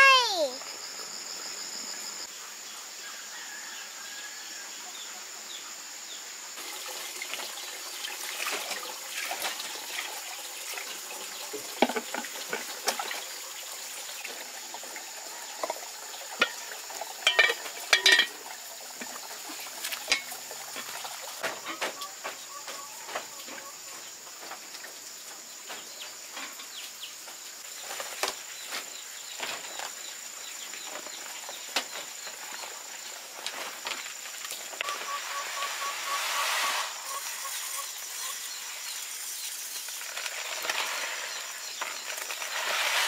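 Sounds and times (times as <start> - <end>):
water running into plastic bucket: 6.6 - 21.8, 37.0 - 43.0
metal pot and lid clinking: 17.2 - 18.5, 20.1 - 20.4.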